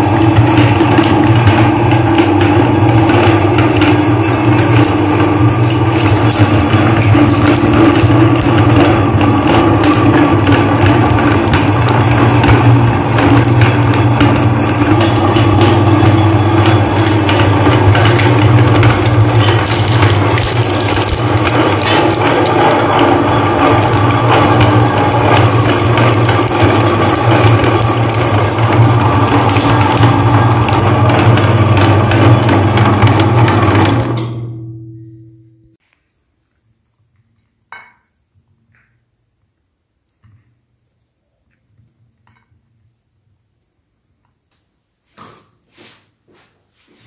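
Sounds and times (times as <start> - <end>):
electric meat grinder running: 0.0 - 34.6.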